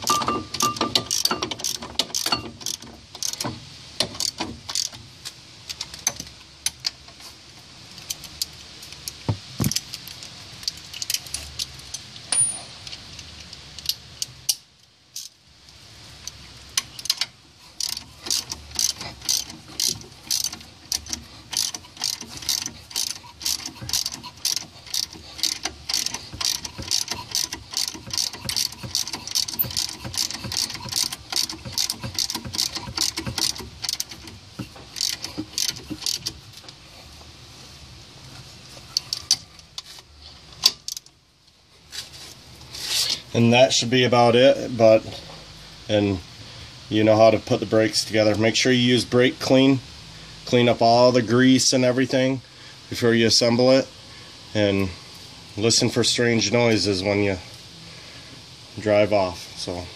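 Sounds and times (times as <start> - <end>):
socket ratchet clicking: 0.0 - 3.4, 16.8 - 36.4.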